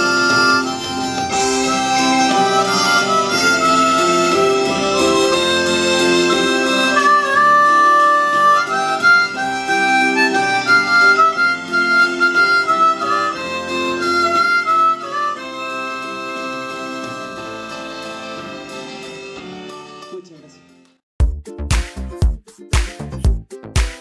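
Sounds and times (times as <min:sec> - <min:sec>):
harmonica melody: 0:00.0 - 0:19.4.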